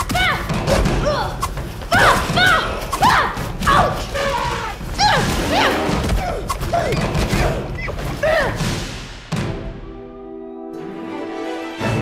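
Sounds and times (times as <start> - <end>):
people shouting cries: 0.0 - 8.6
thuds of blows: 0.0 - 9.8.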